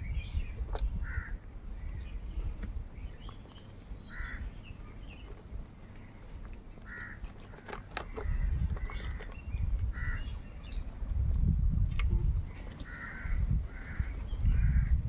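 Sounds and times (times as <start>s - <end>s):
low rumble: 0.0s - 15.0s
crows cawing: 1.0s - 1.4s, 4.1s - 4.6s, 6.8s - 7.8s, 9.9s - 10.3s, 12.8s - 15.0s.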